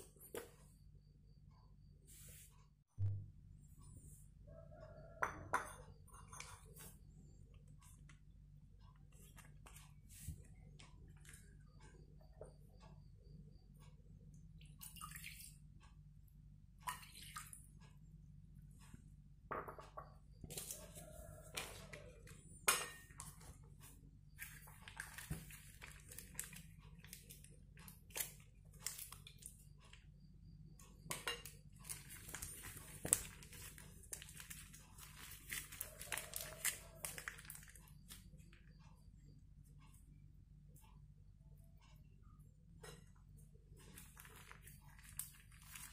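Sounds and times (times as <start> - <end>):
taps against glass bowl: 5.2 - 5.8
plastic bags crinkling: 31.8 - 37.8.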